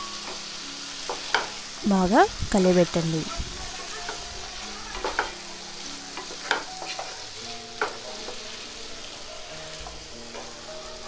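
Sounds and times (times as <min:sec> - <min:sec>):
vegetables sizzling in a frying pan: 0:00.0 - 0:11.0
spatula scraping and tapping pan: 0:00.2 - 0:01.7, 0:03.7 - 0:10.7.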